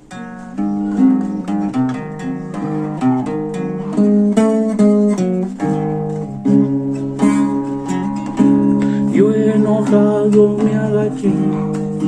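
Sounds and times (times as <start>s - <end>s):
classical guitar playing: 0.0s - 12.0s.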